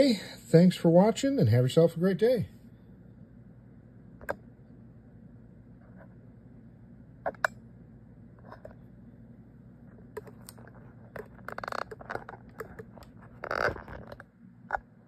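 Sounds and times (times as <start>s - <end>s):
steady low hum: 0.0s - 15.0s
clicks scrapes and rustling: 10.1s - 14.9s.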